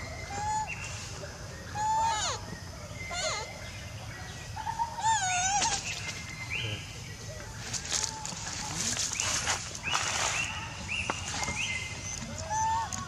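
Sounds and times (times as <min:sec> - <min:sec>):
monkey squealing: 0:01.8 - 0:02.4, 0:03.1 - 0:03.5, 0:04.7 - 0:05.8, 0:12.0 - 0:13.0
dry leaves rustling: 0:07.4 - 0:13.0.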